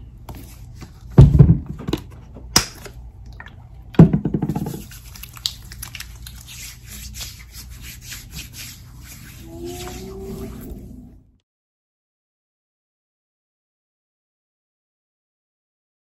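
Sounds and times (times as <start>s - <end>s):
bottle knock and rattle: 4.0s - 4.8s
rubbing lotion into skin: 4.5s - 10.9s.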